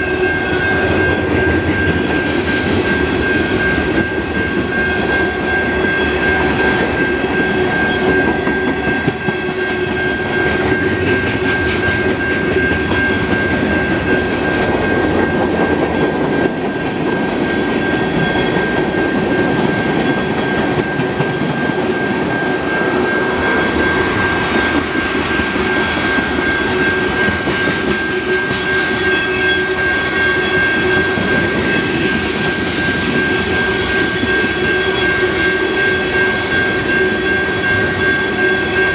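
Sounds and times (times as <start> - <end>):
freight train wheels on rails: 0.0 - 38.9
steady high-pitched tone: 0.0 - 38.9.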